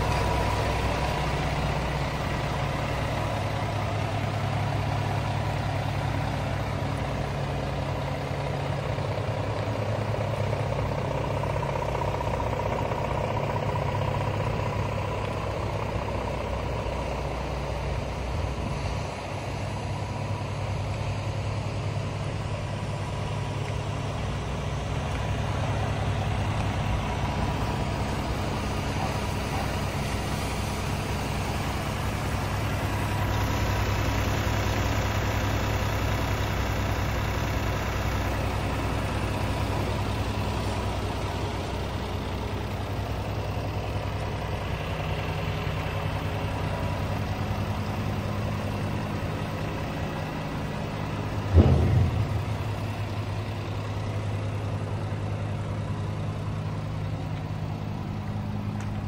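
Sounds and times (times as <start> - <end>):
diesel truck engine idling: 0.0 - 59.0
hydraulic whine: 51.2 - 54.0.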